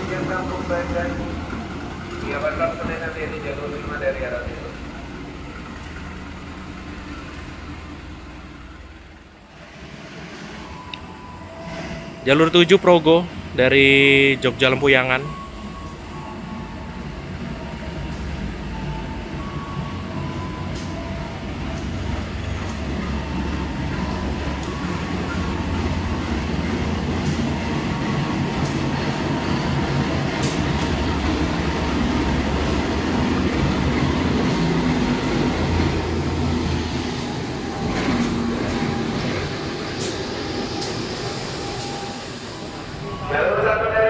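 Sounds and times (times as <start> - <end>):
train engine rumble: 0.0 - 44.0
wheels clicking over rail joints: 21.6 - 39.4
high brake squeal: 28.8 - 44.0.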